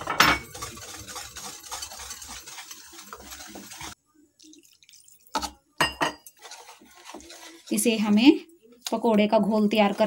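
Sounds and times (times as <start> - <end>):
whisk scratching against bowl: 0.0 - 4.0, 6.3 - 8.3.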